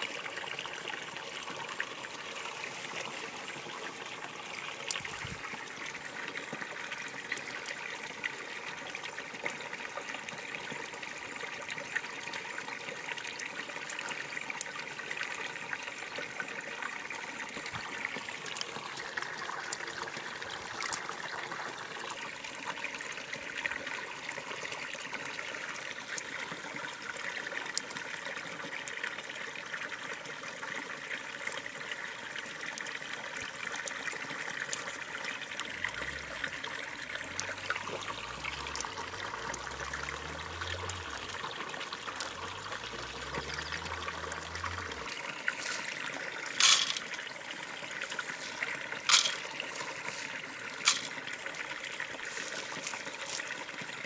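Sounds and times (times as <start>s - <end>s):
seeds dropped into clay pot: 20.7s - 21.0s, 46.6s - 47.2s, 48.4s - 50.2s, 50.8s - 51.2s
seeds picked from dry ground: 37.4s - 51.2s, 52.2s - 53.5s.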